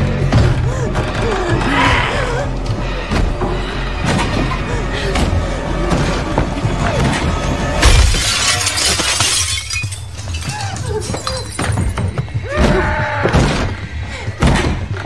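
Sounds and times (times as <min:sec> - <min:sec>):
glass shattering: 0:07.8 - 0:12.2.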